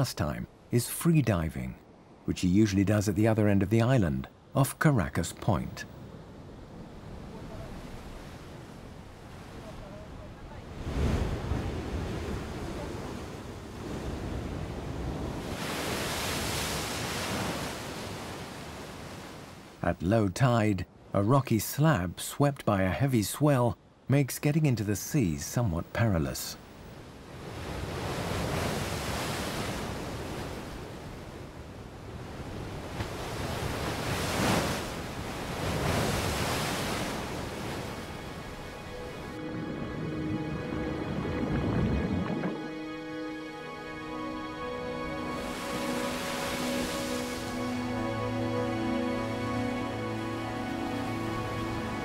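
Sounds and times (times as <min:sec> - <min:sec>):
low rumble of surf: 0:00.0 - 0:42.9
ocean waves breaking on rocks: 0:05.9 - 0:19.8, 0:25.9 - 0:42.6, 0:45.4 - 0:48.0.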